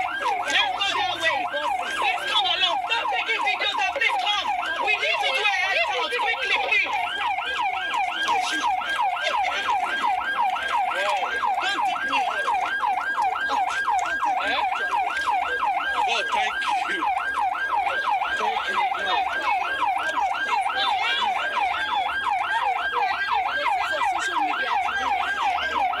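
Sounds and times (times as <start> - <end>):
siren yelping: 0.0 - 26.0.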